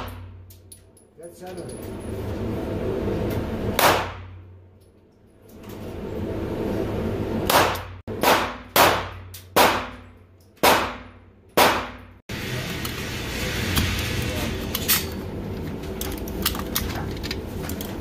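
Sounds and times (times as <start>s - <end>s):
pistol shots echoing: 7.5s - 10.0s, 10.6s - 12.0s.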